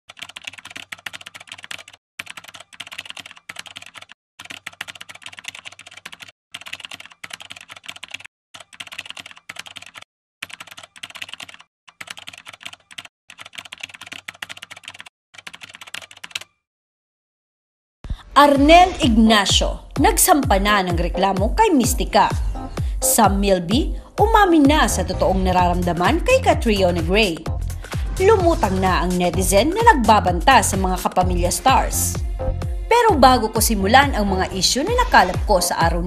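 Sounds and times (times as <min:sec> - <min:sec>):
keyboard typing clicks: 0:00.1 - 0:16.6.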